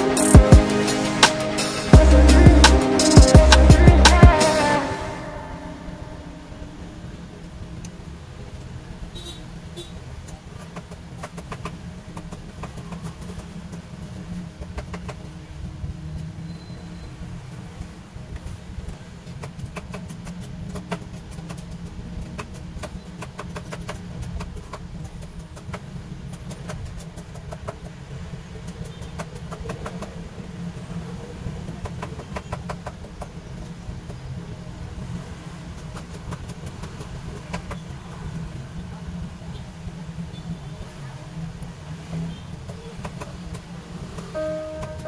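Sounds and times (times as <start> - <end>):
steady low rumble: 0.0 - 7.4.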